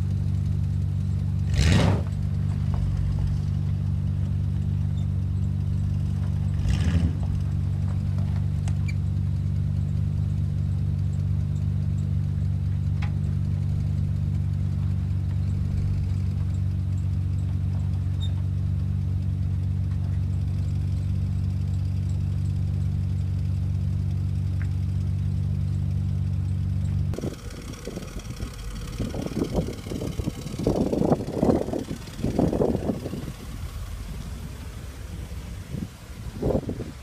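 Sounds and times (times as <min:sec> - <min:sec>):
truck engine idling: 0:00.0 - 0:37.0
uneven rumbling: 0:22.9 - 0:37.0.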